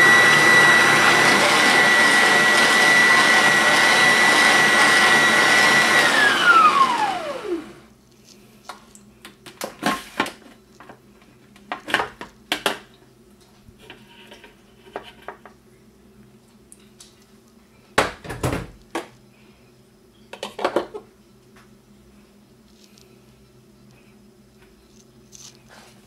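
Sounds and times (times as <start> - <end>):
food processor motor whining: 0.0 - 7.9.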